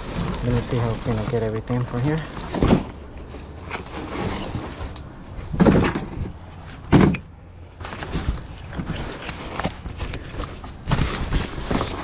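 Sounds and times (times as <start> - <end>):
rustling and knocking in dumpster: 0.0 - 12.0.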